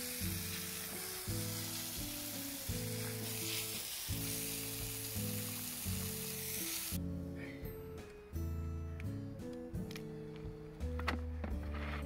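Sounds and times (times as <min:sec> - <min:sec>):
hose spraying water on concrete: 0:00.0 - 0:07.0
background music low held notes: 0:00.0 - 0:12.0.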